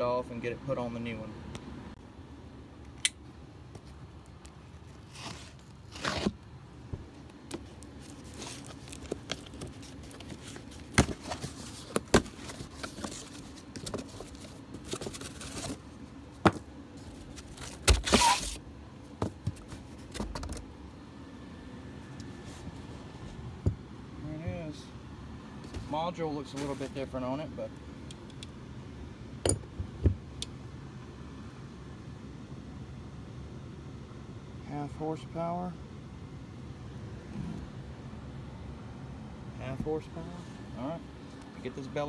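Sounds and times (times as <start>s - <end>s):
cardboard box rustling and tearing: 5.0s - 6.4s, 7.9s - 15.8s, 17.2s - 18.6s.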